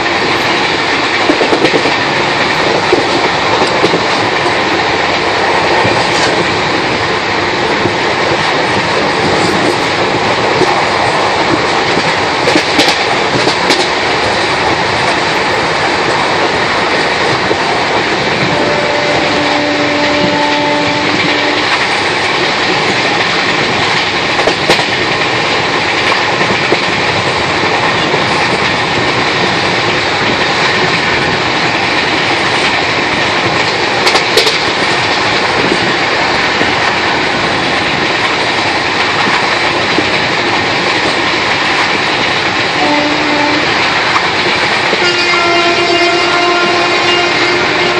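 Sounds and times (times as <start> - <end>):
train wheels rumbling on rails: 0.0 - 47.9
train horn: 18.4 - 21.8, 42.8 - 43.8, 45.0 - 47.9.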